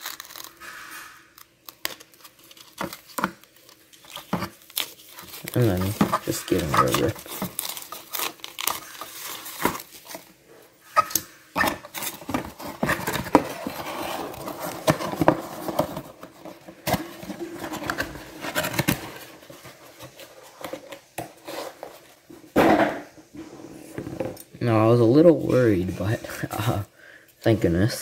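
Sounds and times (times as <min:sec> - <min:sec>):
foam wrap rustling and tearing: 0:00.0 - 0:22.2.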